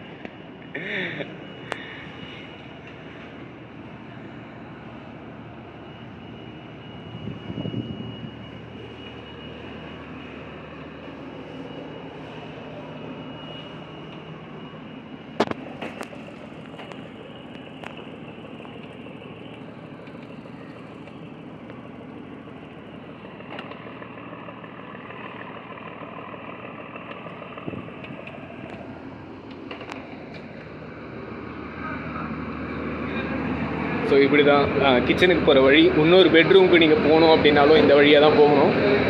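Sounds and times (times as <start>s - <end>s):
boat engine running: 15.4s - 39.0s.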